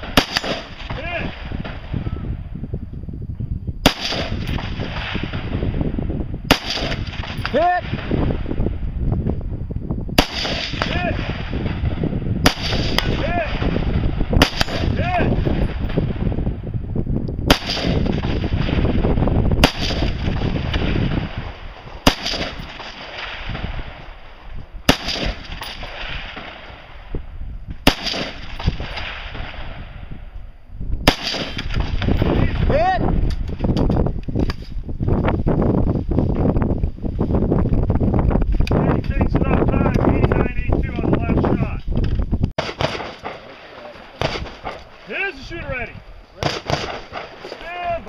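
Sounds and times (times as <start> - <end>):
rifle shots: 0.0 - 2.0, 3.8 - 5.8, 6.5 - 8.5, 10.2 - 16.4, 17.5 - 27.1, 27.8 - 30.1, 31.0 - 32.7, 42.6 - 45.8, 46.4 - 47.7.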